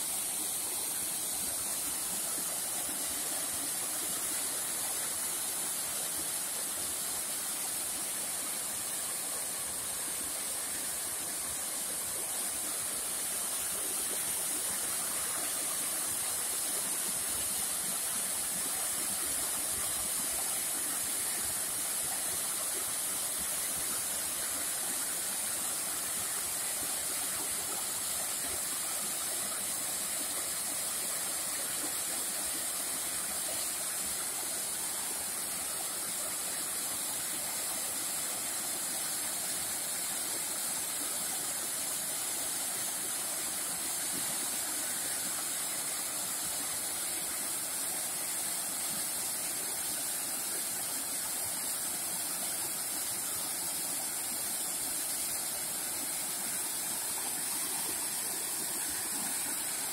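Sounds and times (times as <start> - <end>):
waterfall over rocks: 0.0 - 59.9.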